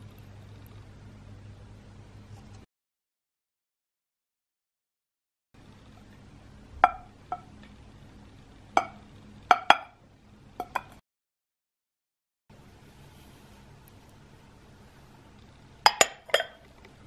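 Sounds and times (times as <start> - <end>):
faint steady hum: 0.0 - 2.7, 5.6 - 11.0, 12.5 - 17.0
ceramic ramekin clinking: 15.8 - 16.7.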